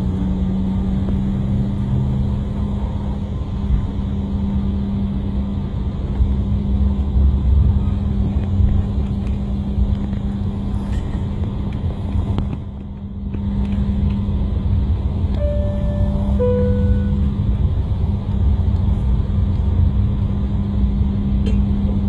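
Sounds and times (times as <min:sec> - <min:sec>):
aircraft engine hum: 0:00.0 - 0:22.0
low rumble: 0:06.0 - 0:22.0.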